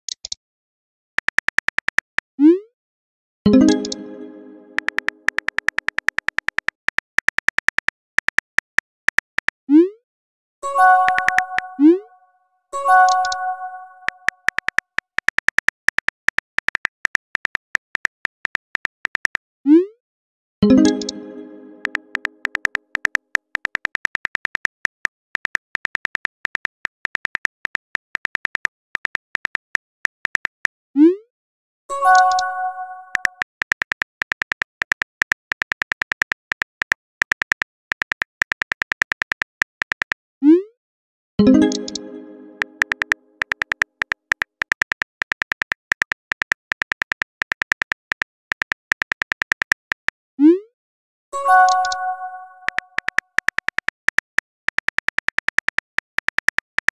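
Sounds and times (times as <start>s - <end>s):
phone keyboard clicks: 1.2s - 2.3s, 4.8s - 9.6s, 11.0s - 11.7s, 14.1s - 19.4s, 21.8s - 30.6s, 33.1s - 40.2s, 41.6s - 50.2s, 52.7s - 56.9s.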